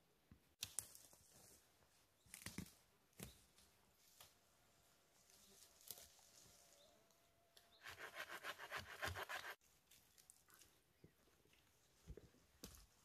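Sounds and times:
hand saw cutting wood: 0:07.8 - 0:09.6.

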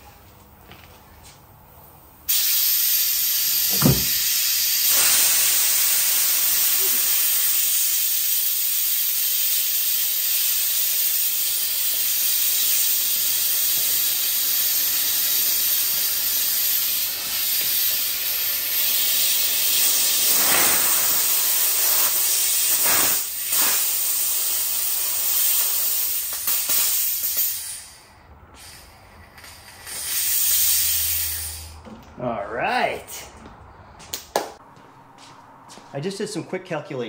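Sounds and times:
compressed air hissing: 0:02.3 - 0:31.8.

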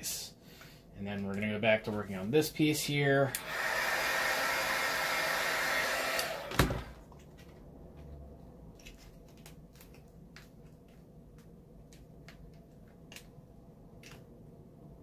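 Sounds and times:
heat gun blowing: 0:03.2 - 0:07.0.

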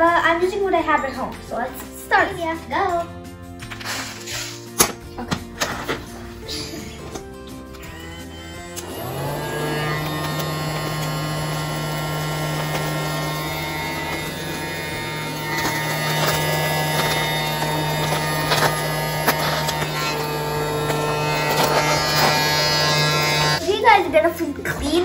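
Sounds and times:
toy vacuum motor buzzing: 0:07.7 - 0:23.6.

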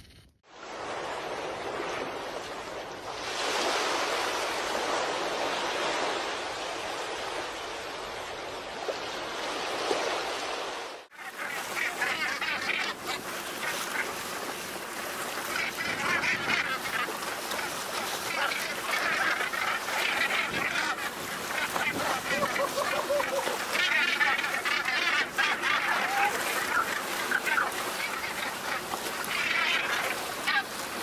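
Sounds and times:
water splashing from fish: 0:08.8 - 0:31.0
seabirds calling: 0:11.1 - 0:31.0.

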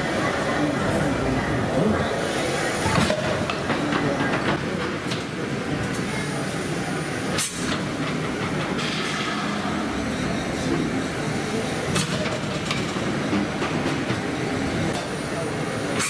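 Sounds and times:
steam engine clattering and knocking: 0:02.9 - 0:05.3, 0:07.4 - 0:09.9, 0:11.9 - 0:14.4.

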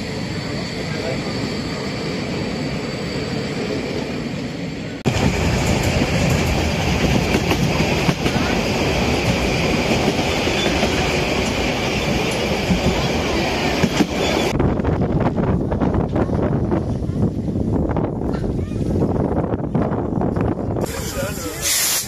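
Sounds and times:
train wheels clattering on track: 0:05.1 - 0:14.6
hiss: 0:20.8 - 0:22.0.

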